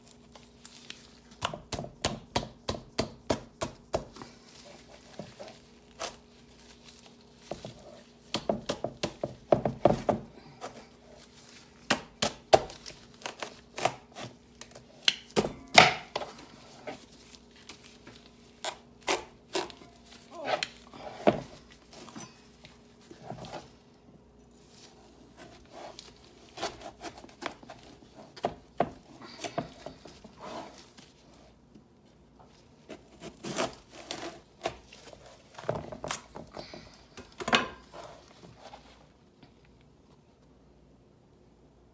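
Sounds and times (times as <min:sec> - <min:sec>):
knife cutting through squash rind: 0:04.7 - 0:09.3, 0:11.8 - 0:15.1, 0:16.2 - 0:22.4, 0:24.8 - 0:31.0, 0:32.8 - 0:36.3.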